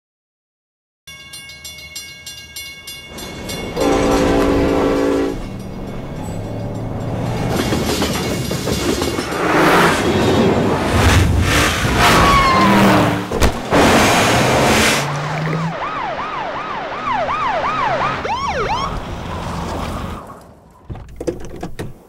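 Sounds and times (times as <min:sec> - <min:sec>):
air horn chord: 0:03.8 - 0:05.6.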